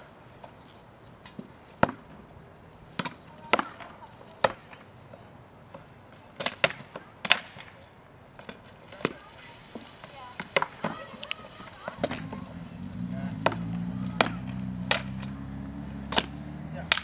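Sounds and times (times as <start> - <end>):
rattan swords striking shields: 16.0 - 17.0.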